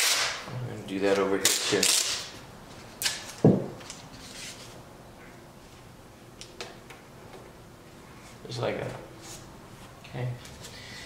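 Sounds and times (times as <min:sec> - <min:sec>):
tape tearing: 0:00.0 - 0:00.4, 0:01.1 - 0:02.4, 0:03.0 - 0:04.7.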